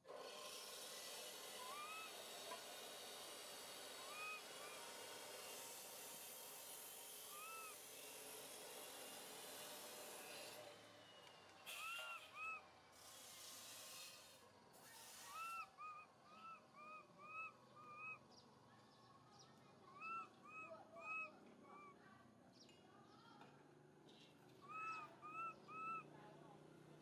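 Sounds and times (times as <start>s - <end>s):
baby monkey coo calls: 7.3s - 7.8s, 11.7s - 12.6s, 24.6s - 26.1s.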